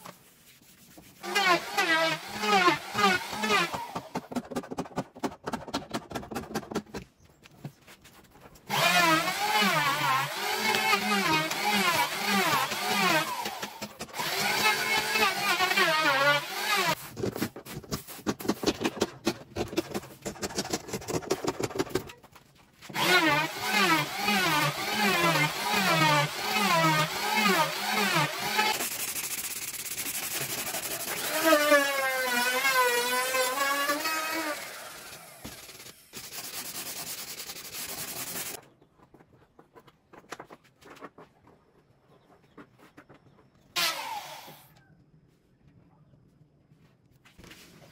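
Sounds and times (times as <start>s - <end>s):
faint scraping and rubbing: 0.0s - 1.2s
sanding by hand: 0.0s - 4.2s, 23.0s - 34.6s, 35.4s - 38.6s.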